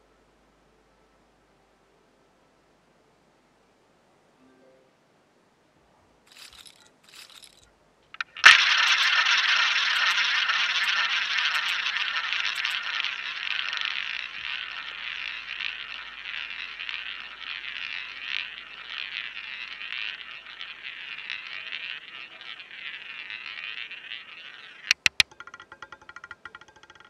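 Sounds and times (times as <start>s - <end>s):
roulette ball whirring round wheel: 6.3s - 7.6s, 8.2s - 27.0s
ball clattering into pockets: 6.3s - 26.8s.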